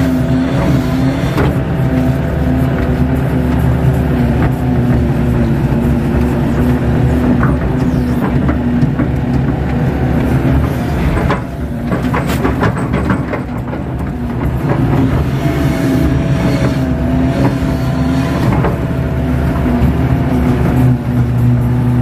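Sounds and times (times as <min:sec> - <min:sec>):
diesel engine under load: 0:00.0 - 0:22.0
metallic clanks and knocks: 0:06.2 - 0:15.4.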